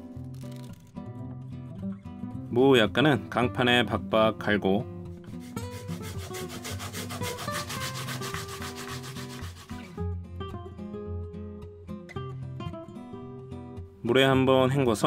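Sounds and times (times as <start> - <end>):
soft guitar music: 0.0 - 15.0
radish grated on metal grater: 5.4 - 9.9.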